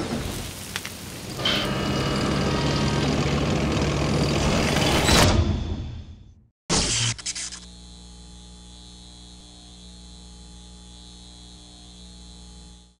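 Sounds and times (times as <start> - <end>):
steady electrical hum: 7.6 - 13.0.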